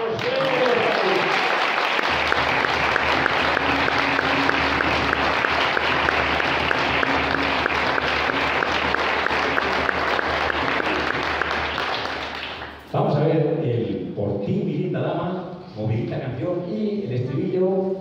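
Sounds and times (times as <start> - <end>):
crowd applauding: 0.0 - 12.9
hands clapping in time: 0.0 - 12.9.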